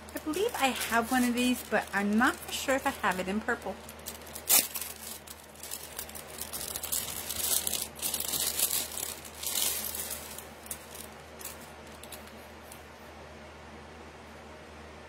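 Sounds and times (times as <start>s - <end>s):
plastic packaging crinkling: 0.0s - 12.4s.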